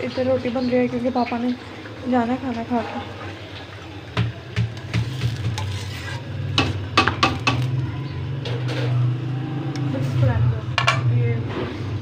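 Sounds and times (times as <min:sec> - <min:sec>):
utensils tapping on griddle: 0:04.2 - 0:07.8.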